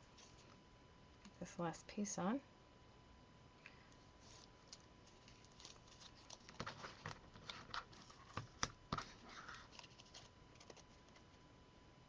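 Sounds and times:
paper rustling and crinkling: 4.2 - 11.4.

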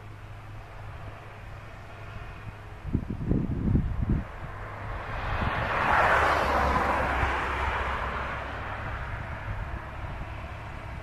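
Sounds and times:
tractor diesel engine drone: 0.0 - 11.0
broad rushing noise: 2.8 - 11.0.

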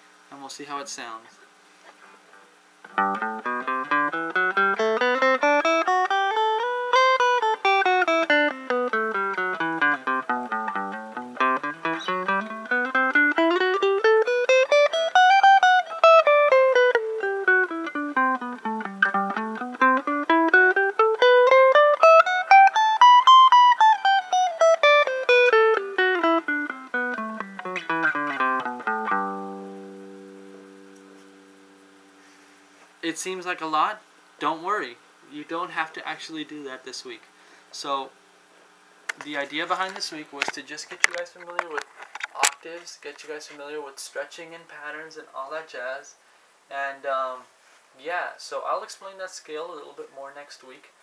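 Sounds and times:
electric guitar playing scales: 2.9 - 32.6.

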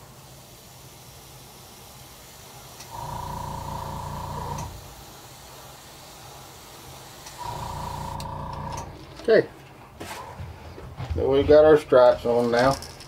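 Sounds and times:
airbrush spraying: 0.0 - 9.0.

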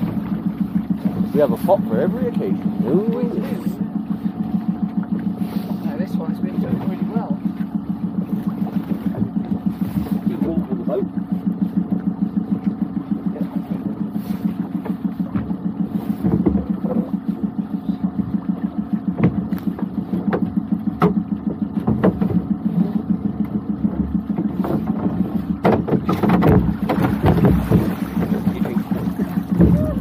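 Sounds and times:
outboard motor idling: 0.0 - 30.0
knocks from hauling pots: 25.6 - 30.0.

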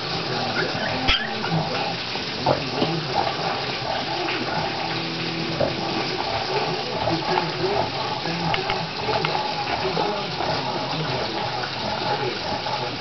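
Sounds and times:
puppies whimpering and squeaking: 0.5 - 1.7.

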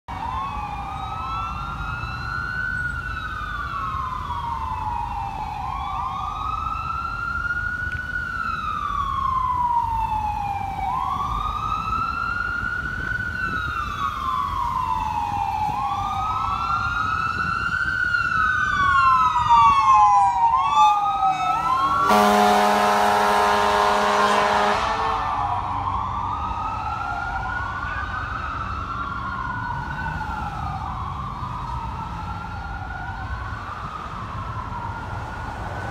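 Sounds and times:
fire engine siren wailing: 0.1 - 35.9
air horn blast: 21.8 - 25.4.

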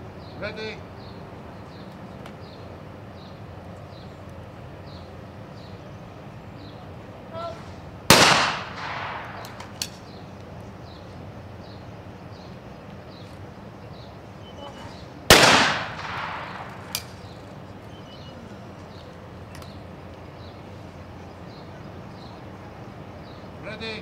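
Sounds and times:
shotgun shot with ringing echo: 8.1 - 9.8, 15.3 - 17.2.

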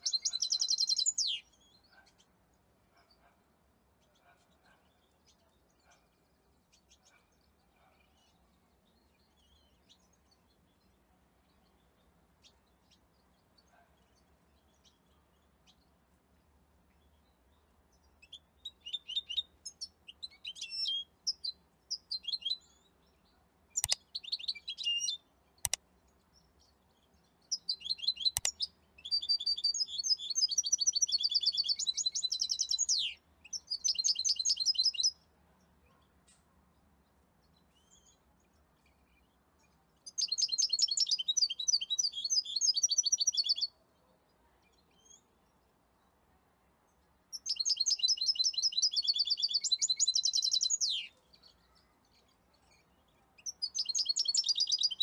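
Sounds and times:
finch twittering song: 0.0 - 2.4, 4.0 - 35.3, 37.4 - 43.8, 47.3 - 55.0
sharp clicks: 23.8 - 24.1, 25.6 - 25.8, 28.3 - 28.6.

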